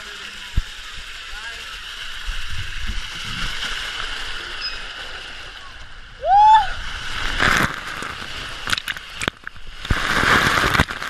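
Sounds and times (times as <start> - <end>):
splashing water crackles: 0.0 - 11.0
water rushing down a slide: 0.0 - 11.0
splash into pool: 6.5 - 11.0.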